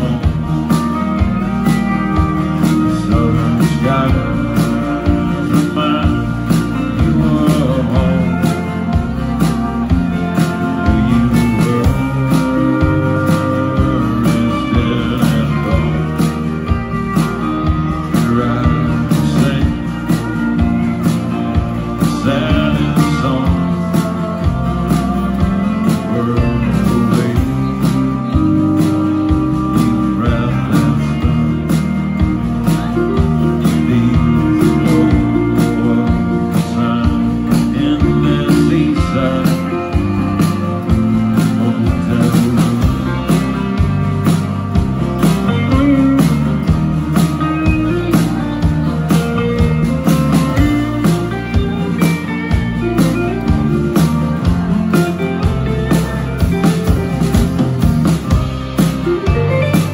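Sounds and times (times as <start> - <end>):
country band playing: 0.0 - 59.9
drums: 0.0 - 59.9
pedal steel guitar: 0.0 - 59.9.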